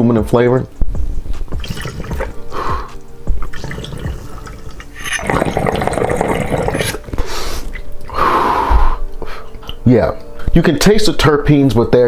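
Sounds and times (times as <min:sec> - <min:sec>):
water gurgling in a bong: 0:01.6 - 0:02.5, 0:03.4 - 0:07.1.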